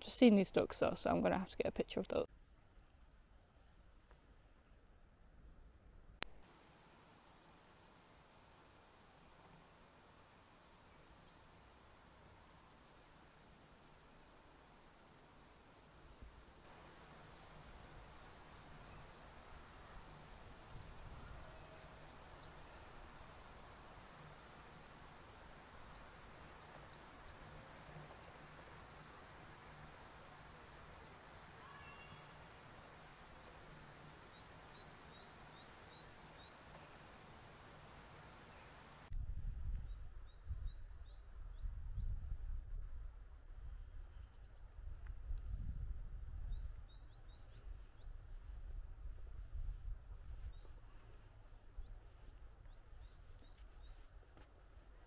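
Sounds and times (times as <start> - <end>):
quiet outdoor hiss: 0.0 - 55.0
faint songbird song: 2.6 - 5.4, 6.4 - 42.4, 43.0 - 48.6, 49.5 - 54.3.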